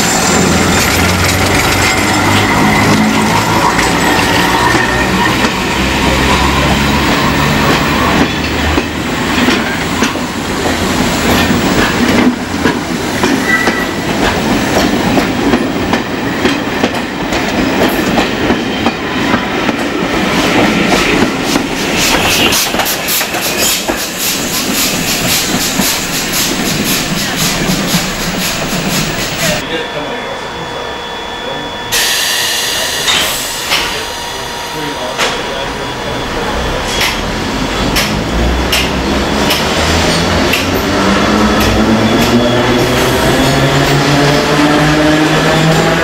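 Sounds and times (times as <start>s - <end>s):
train wheels clattering over rail joints: 0.0s - 5.9s, 6.8s - 29.6s
steam locomotive chugging: 0.0s - 46.0s.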